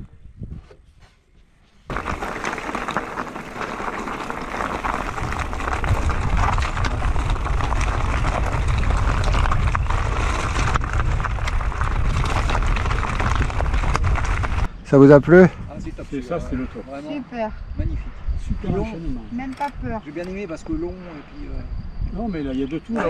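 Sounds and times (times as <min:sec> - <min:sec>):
wind buffeting microphone: 0:00.0 - 0:00.8, 0:01.9 - 0:23.0
tyres rolling over dirt and stones: 0:01.9 - 0:15.5.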